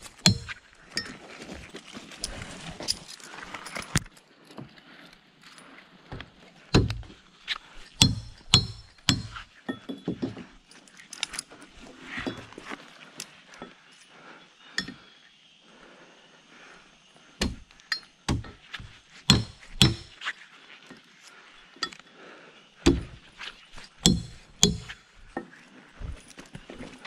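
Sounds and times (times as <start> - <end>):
heavier thuds: 22.8 - 23.2.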